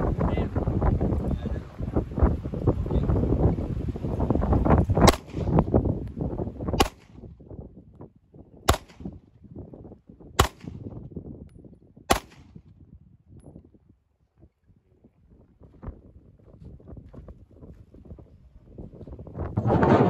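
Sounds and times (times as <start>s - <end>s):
wind buffeting microphone: 0.0s - 20.0s
pistol shots: 5.0s - 5.6s, 6.8s - 7.3s, 8.7s - 9.2s, 10.4s - 10.9s, 12.1s - 12.6s.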